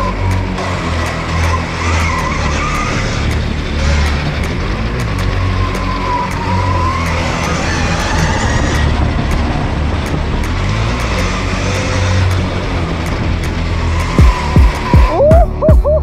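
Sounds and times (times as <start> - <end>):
electric motor whining: 0.0 - 15.4
wind rumble on microphone: 7.6 - 16.0.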